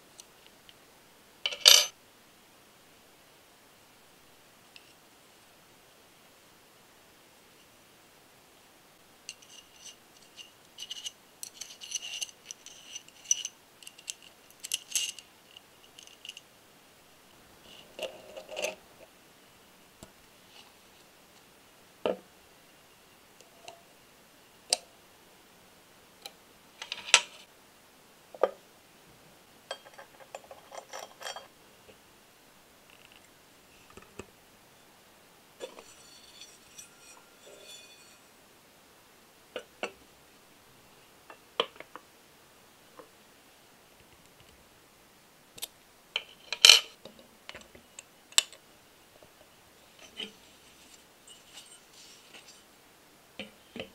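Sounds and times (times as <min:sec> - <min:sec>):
small metal parts clicking: 0:09.3 - 0:16.4.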